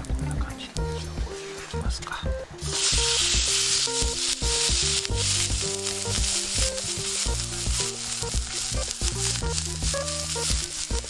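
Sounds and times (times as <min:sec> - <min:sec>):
melodic background music: 0:00.0 - 0:11.0
steak sizzling in a skillet: 0:02.5 - 0:11.0.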